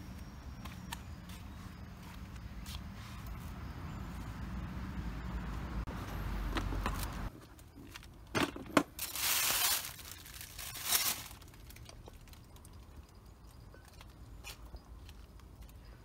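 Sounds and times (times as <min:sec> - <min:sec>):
plastic bag rustling: 0:06.9 - 0:12.8.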